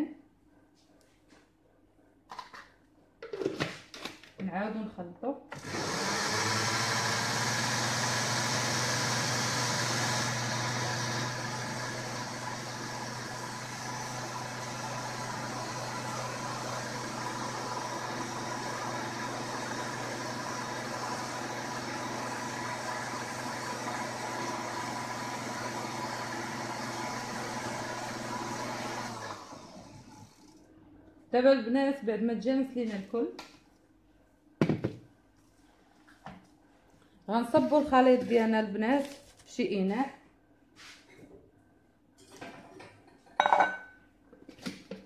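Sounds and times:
blender motor whining: 0:05.5 - 0:30.6.

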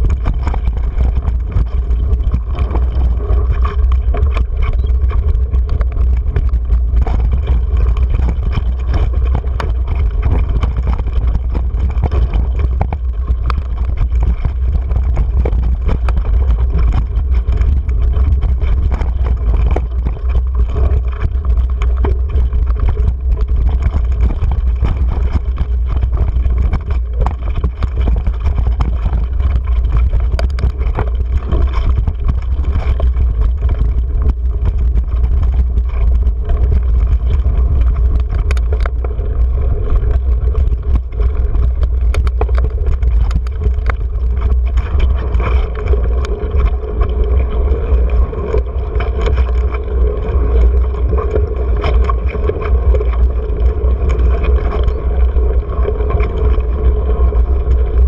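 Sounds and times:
bike rattling and knocking: 0:00.0 - 0:58.0
wind rumble on microphone: 0:00.0 - 0:58.0.

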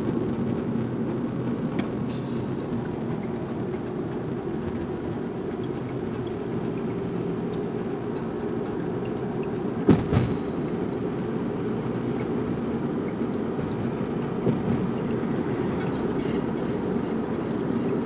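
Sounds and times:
car cabin road rumble: 0:00.0 - 0:18.0
sharp knocks: 0:09.8 - 0:10.6.

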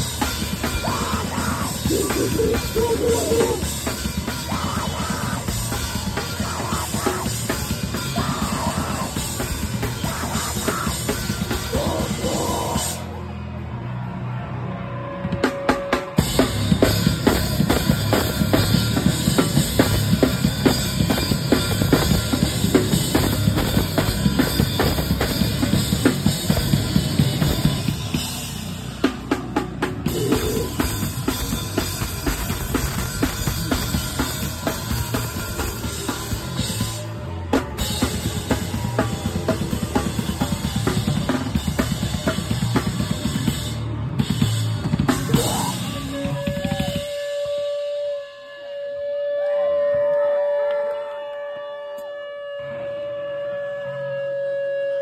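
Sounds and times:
drum kit: 0:00.0 - 0:13.2, 0:15.2 - 0:47.8
electric guitar: 0:00.0 - 0:13.2
bass guitar: 0:00.0 - 0:47.2.

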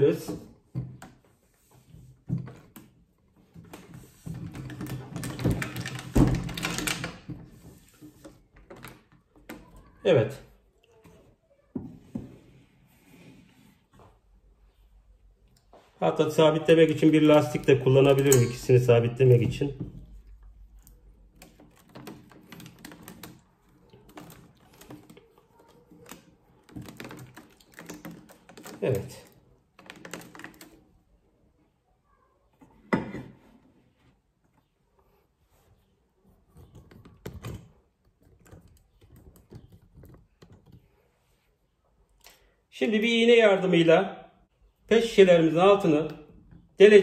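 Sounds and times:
plastic bottles clicking and crinkling: 0:02.2 - 0:10.0, 0:17.0 - 0:31.0.

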